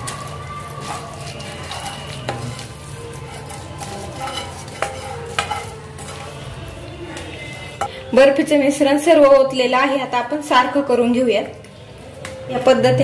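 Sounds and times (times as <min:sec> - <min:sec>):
wooden spatula scraping steel pan: 0:00.0 - 0:07.9.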